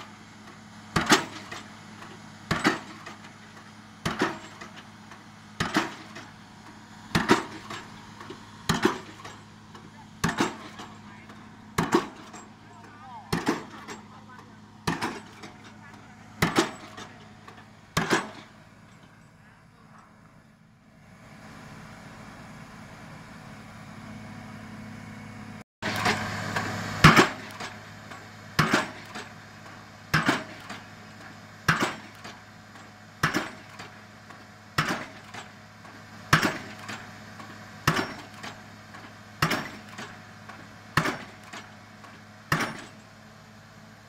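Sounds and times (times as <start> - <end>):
rig engine running: 0.0 - 44.0
pile hammer heavy blows: 0.9 - 4.8, 5.6 - 6.4, 7.1 - 19.0, 27.0 - 27.8, 28.6 - 30.9, 31.6 - 32.4, 33.2 - 34.0, 34.8 - 35.5, 36.3 - 37.1, 37.8 - 41.8, 42.5 - 43.0.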